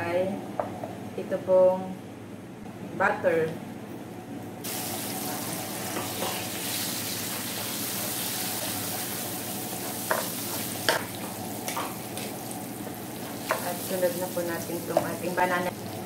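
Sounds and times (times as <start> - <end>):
butter sizzling in a frying pan: 4.6 - 16.0.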